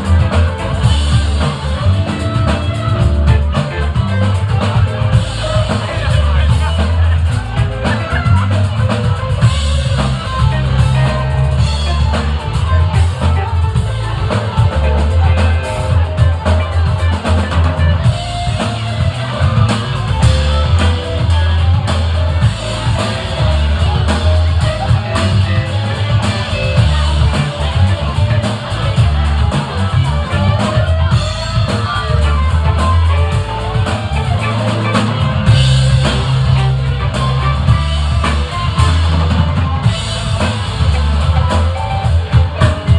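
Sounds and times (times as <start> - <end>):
bass guitar: 0.0 - 42.9
drum kit beat: 0.0 - 42.9
electric guitar: 0.0 - 42.9.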